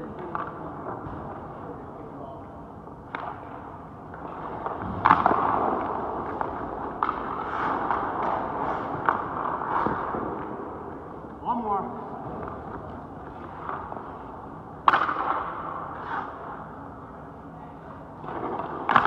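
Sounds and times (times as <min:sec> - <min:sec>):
hockey stick hitting puck: 0:03.1 - 0:10.8, 0:14.8 - 0:16.6, 0:18.2 - 0:19.0
skate blades scraping ice: 0:04.3 - 0:10.4, 0:14.9 - 0:16.6.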